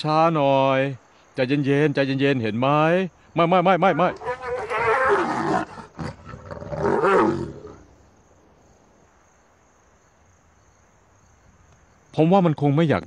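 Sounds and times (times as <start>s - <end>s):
young lions snarling: 3.9s - 7.9s.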